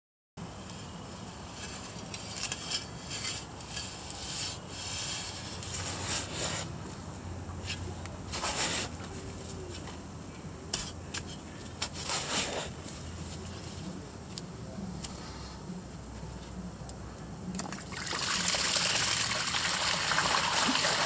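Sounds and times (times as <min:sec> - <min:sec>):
shovel scraping in soil: 0:00.7 - 0:06.8, 0:07.6 - 0:09.0, 0:10.7 - 0:13.0.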